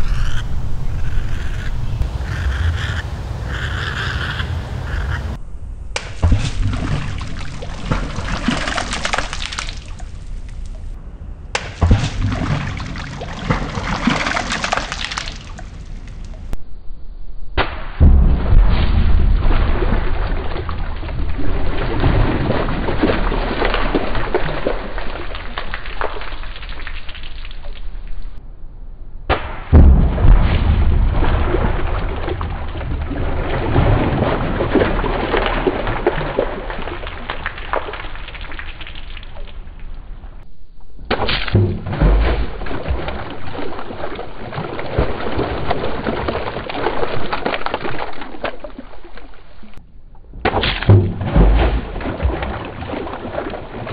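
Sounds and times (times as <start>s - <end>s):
slow-motion splashes in water: 5.9s - 16.6s, 17.7s - 28.4s, 29.4s - 40.4s, 41.0s - 53.9s
heavy low thud: 18.0s - 19.5s, 29.4s - 31.2s, 50.3s - 52.0s.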